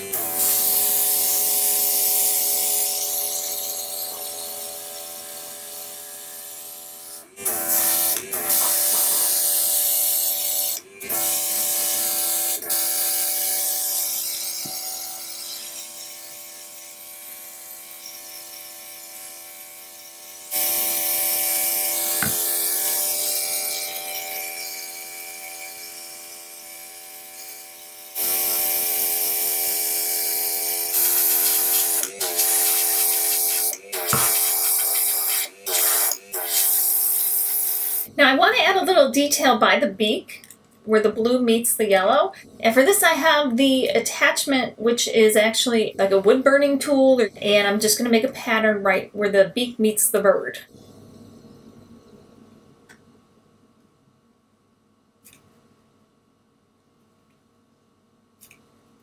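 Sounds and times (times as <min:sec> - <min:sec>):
small compressor humming: 0:00.0 - 0:38.2
airbrush paint spray hissing: 0:07.4 - 0:10.3, 0:30.8 - 0:38.1.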